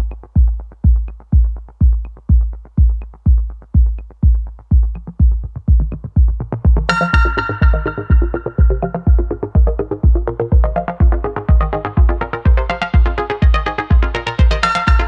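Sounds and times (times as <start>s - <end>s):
electronic dance music: 0.0s - 15.0s
kick drum: 0.0s - 15.0s
ticking hi-hats: 0.0s - 15.0s.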